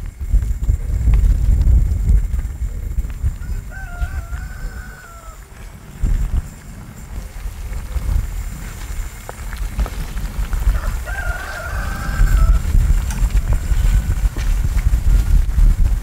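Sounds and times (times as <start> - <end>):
steady low rumble: 0.0 - 16.0
rooster crowing: 3.2 - 5.7, 10.5 - 14.6.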